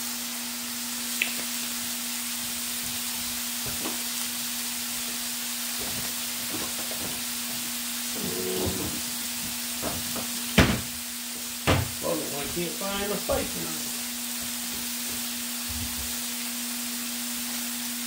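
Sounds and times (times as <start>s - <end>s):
meat sizzling on a grill: 0.0s - 18.0s
utensil scraping cooking surface: 5.7s - 10.2s.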